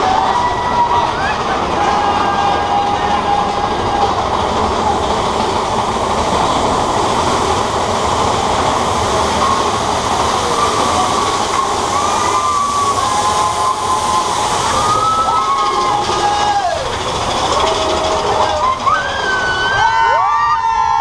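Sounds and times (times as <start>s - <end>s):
roller coaster cars on rails: 0.0s - 21.0s.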